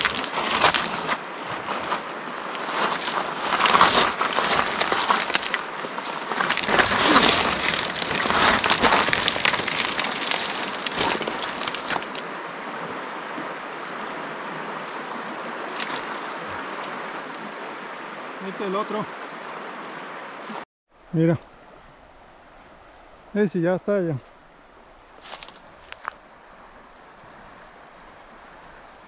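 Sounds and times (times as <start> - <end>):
footsteps crunching on cobbles: 0.0 - 12.2, 24.2 - 26.2
dry reeds crackling: 0.0 - 12.3, 15.2 - 17.4, 24.2 - 26.2.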